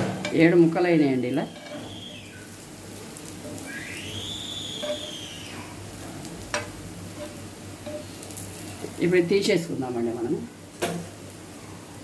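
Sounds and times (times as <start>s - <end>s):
oil sizzling on a pan: 0.0s - 12.0s
whistle-like rising tone: 1.4s - 2.5s, 3.6s - 5.7s.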